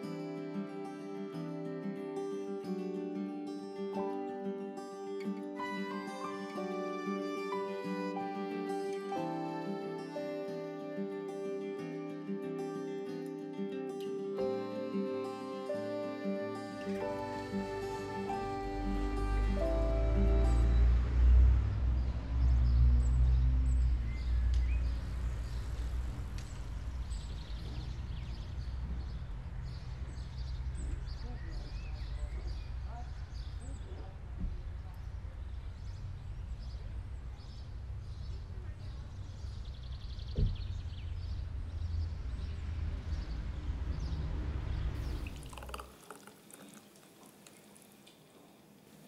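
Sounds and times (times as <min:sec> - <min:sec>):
low traffic rumble: 0:16.4 - 0:48.8
small birds chirping: 0:21.7 - 0:48.7
thump: 0:40.3 - 0:40.7
smoothie pouring into glass: 0:45.0 - 0:48.1.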